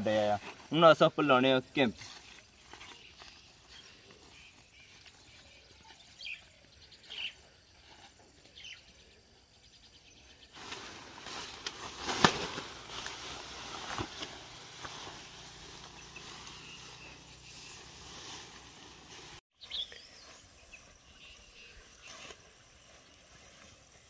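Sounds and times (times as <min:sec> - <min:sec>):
bird chirps: 0:02.1 - 0:10.6, 0:15.3 - 0:18.4, 0:19.5 - 0:24.0
tent fabric rustling: 0:10.6 - 0:19.5.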